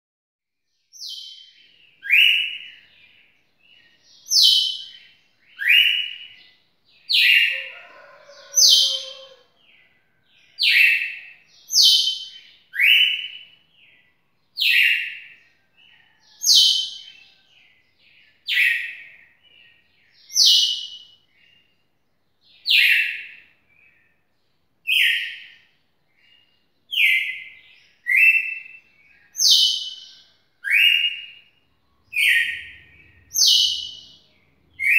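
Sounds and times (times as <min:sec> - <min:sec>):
bird singing whistled notes: 0:01.0 - 0:02.9, 0:03.7 - 0:06.5, 0:10.6 - 0:15.3, 0:24.9 - 0:34.9.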